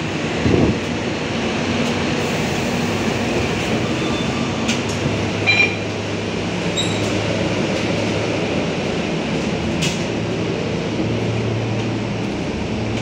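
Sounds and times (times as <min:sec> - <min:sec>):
bus engine idling hum: 0:00.0 - 0:13.0
short electronic beep: 0:05.4 - 0:05.8.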